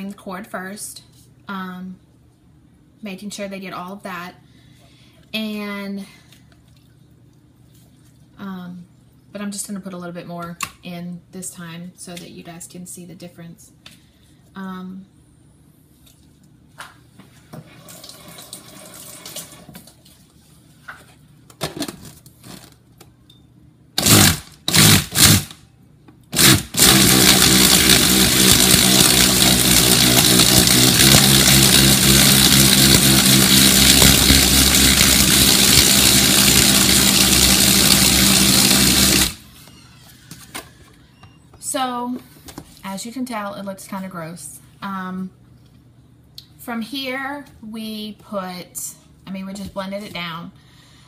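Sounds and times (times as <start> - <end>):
blender running: 24.0 - 25.6, 26.3 - 39.6.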